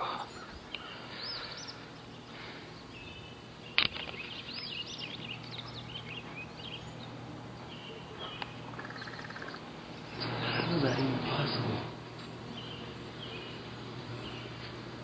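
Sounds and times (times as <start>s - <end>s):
birds chirping: 0.0s - 15.0s
low background noise: 0.0s - 15.0s.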